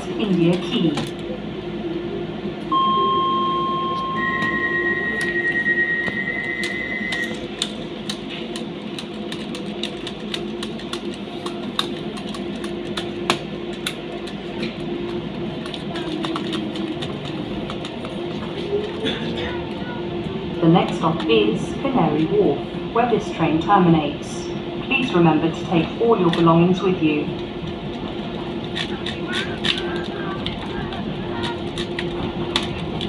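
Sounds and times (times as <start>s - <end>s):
steady warning tone: 0.0s - 9.2s
train hum: 0.0s - 33.0s
pulsed beeping: 2.7s - 7.6s
scattered clicks: 6.6s - 19.0s.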